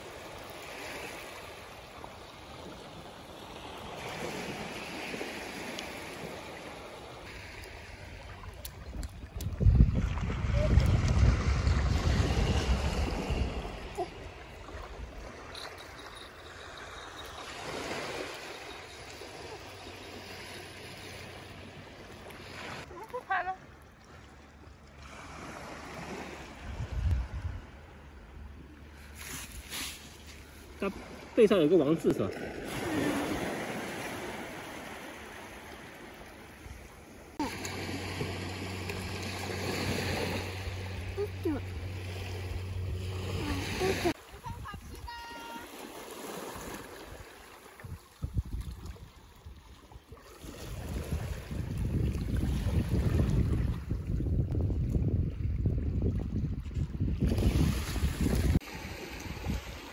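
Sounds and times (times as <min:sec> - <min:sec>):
small waves washing on sand: 0:00.0 - 0:23.6, 0:28.9 - 0:54.2, 0:57.2 - 0:59.9
wind rumbling on microphone: 0:07.7 - 0:16.4, 0:26.0 - 0:28.6, 0:47.8 - 0:59.9
steady low rumble: 0:37.4 - 0:44.2.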